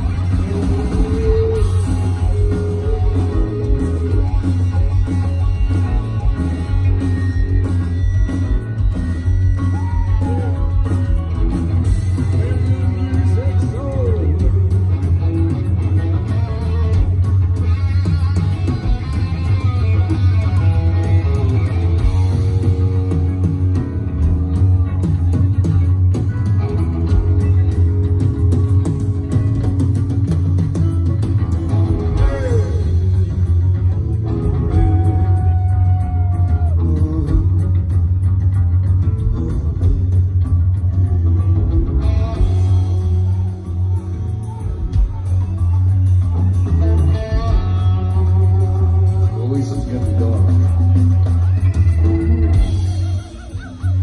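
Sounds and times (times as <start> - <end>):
bass guitar: 0.0 - 54.0
distorted electric guitars: 0.0 - 54.0
drums: 0.0 - 54.0.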